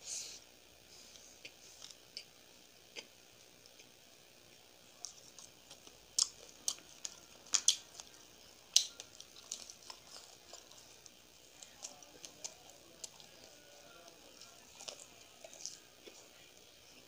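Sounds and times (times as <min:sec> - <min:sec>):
wet chewing mouth clicks: 0:05.0 - 0:16.4.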